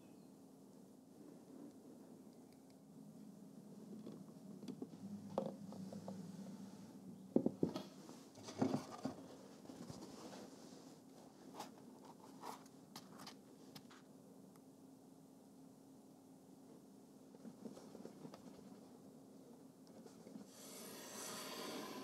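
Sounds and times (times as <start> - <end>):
low hum: 0.6 - 8.3.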